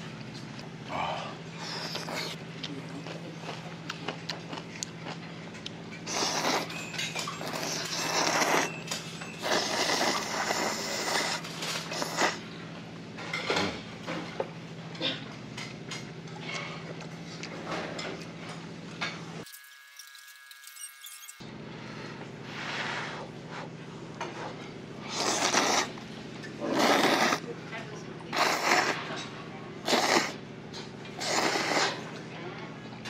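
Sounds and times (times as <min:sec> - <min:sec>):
chewing: 0:00.4 - 0:12.4
noodles being slurped: 0:01.6 - 0:02.4, 0:06.0 - 0:08.7, 0:09.4 - 0:12.4, 0:25.0 - 0:26.0, 0:26.6 - 0:27.4, 0:28.3 - 0:29.1, 0:29.8 - 0:30.4, 0:31.2 - 0:32.1.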